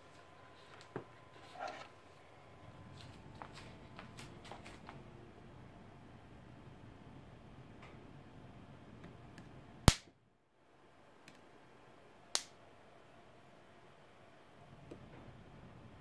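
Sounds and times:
capacitor discharge spark snap: 9.4 - 10.2, 12.3 - 12.6.

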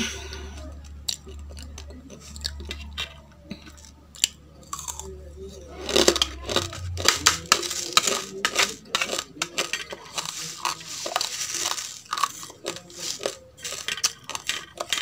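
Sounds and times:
dry rice being chewed: 0.0 - 15.0
rice rustling in plastic bowl: 5.8 - 15.0.

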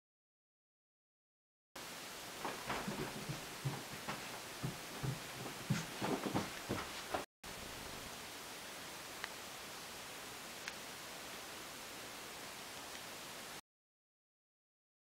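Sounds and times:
steady hiss: 1.8 - 13.6
footsteps on carpeted stairs: 2.2 - 7.3.

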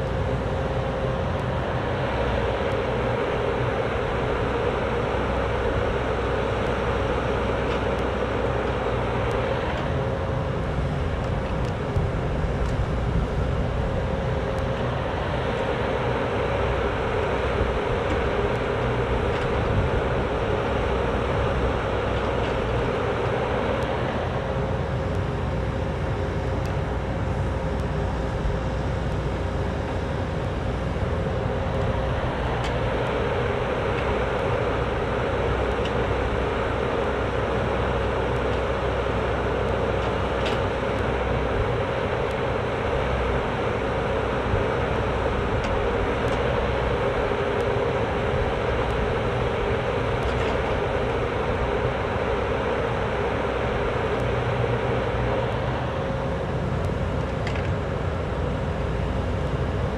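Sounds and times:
diesel engine running: 0.0 - 59.9
hydraulic whine: 0.0 - 59.9.

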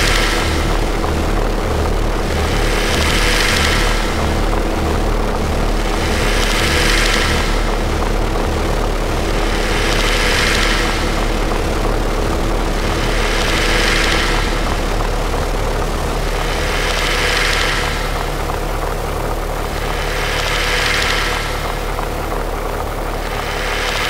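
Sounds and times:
droning noise music: 0.0 - 24.0.

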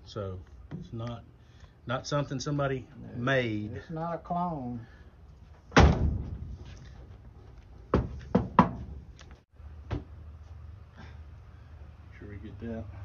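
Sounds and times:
sharp knocks: 7.9 - 9.0.

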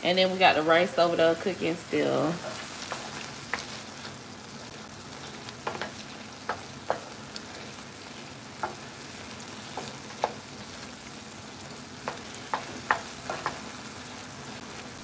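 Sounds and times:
chicken sizzling in a skillet: 0.0 - 15.0
wooden spoon scraping a pan: 2.3 - 11.0.

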